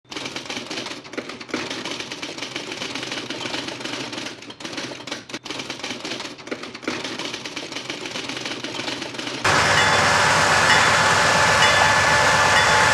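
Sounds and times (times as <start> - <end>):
typewriter keys clacking: 0.1 - 9.4.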